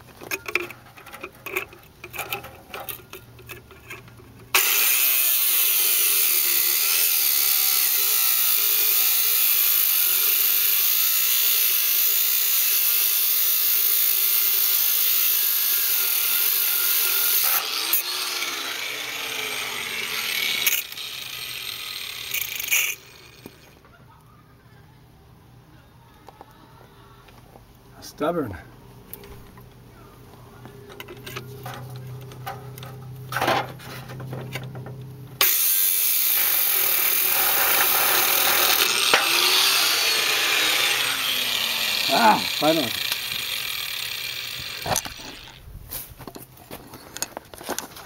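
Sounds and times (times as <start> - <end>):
angle grinder cutting: 4.5 - 23.8, 35.4 - 45.6.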